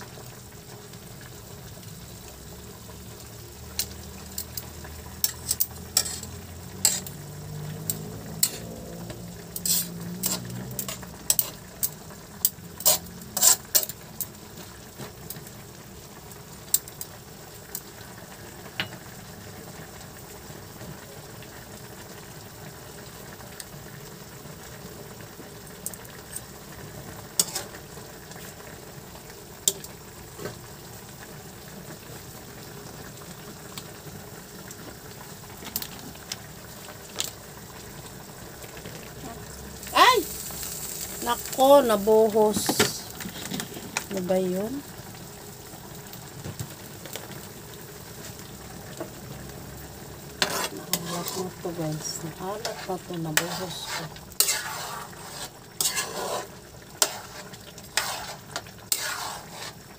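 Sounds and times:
food simmering in sauce: 0.0s - 59.9s
utensils scraping a wok: 3.8s - 14.0s, 27.3s - 27.9s, 40.4s - 44.5s, 50.3s - 59.9s.

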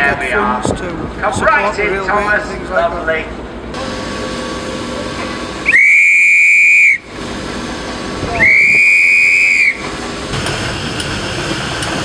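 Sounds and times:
railway whistle blasts: 5.6s - 7.1s, 8.4s - 9.9s.

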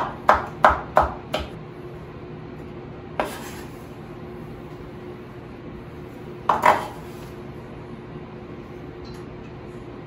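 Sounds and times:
knife chopping on wooden board: 0.0s - 1.6s, 6.5s - 7.0s.

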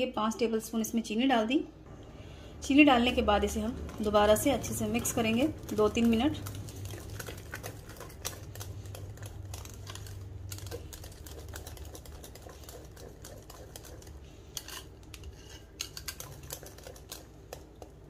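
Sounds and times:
low steady hum: 0.0s - 18.0s
whisk clicking against glass bowl: 4.7s - 17.9s.

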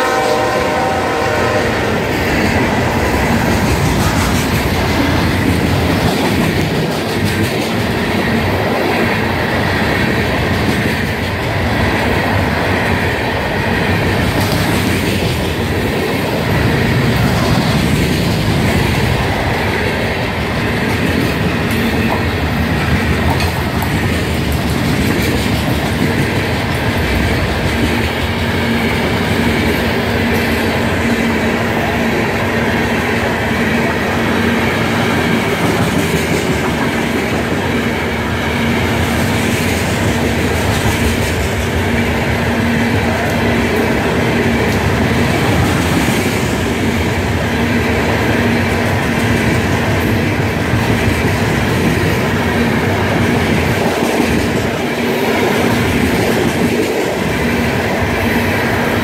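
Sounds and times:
freight train wheels rumbling on rails: 0.0s - 59.0s.

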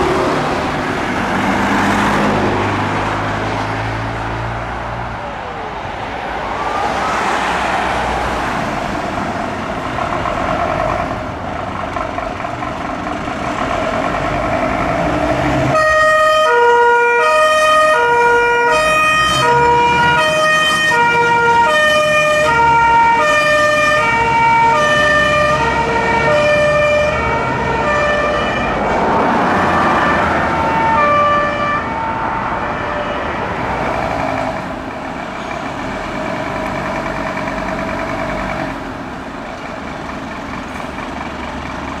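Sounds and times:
diesel engine noise: 0.0s - 42.0s
traffic noise: 0.0s - 42.0s
two-tone fire engine siren: 5.2s - 9.0s, 15.7s - 34.8s.

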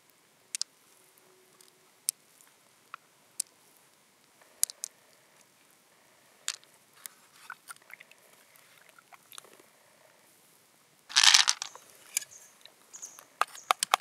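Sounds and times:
pearls clicking together: 4.5s - 5.0s, 6.5s - 6.7s, 11.1s - 12.4s, 13.0s - 14.0s.

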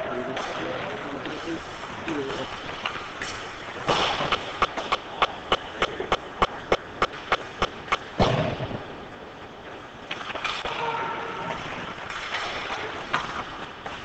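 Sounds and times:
sharp evenly spaced claps: 2.0s - 8.8s.

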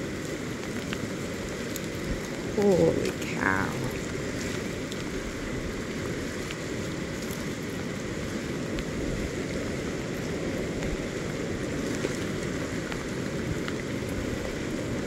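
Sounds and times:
floodwater rushing: 0.0s - 15.0s
rain falling on wet ground: 0.0s - 15.0s.

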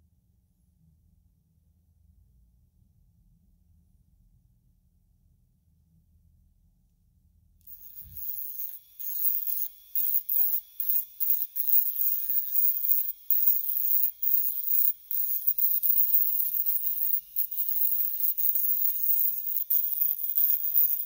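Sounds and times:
rotary tool sanding: 7.7s - 21.0s.

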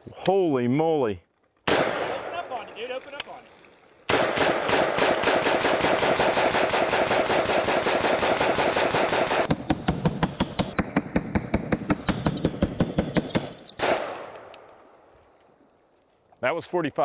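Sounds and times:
rifle firing rapidly: 1.7s - 2.6s, 4.1s - 14.3s.

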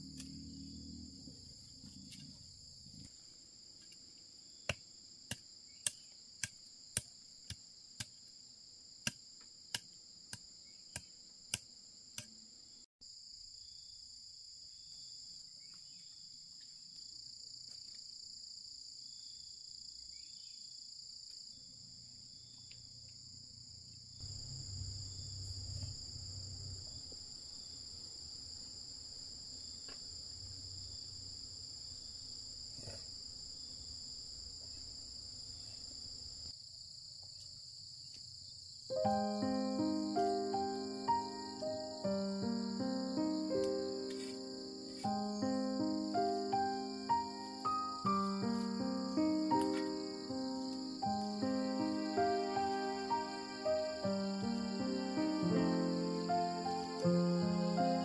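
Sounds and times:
high-pitched insect chorus: 13.0s - 58.0s.

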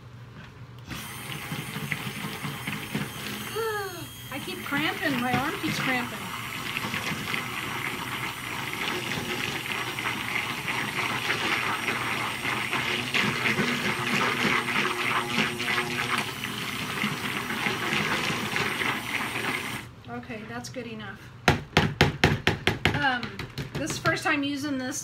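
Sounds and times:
stick blender churning liquid: 0.9s - 3.6s, 4.2s - 19.9s.

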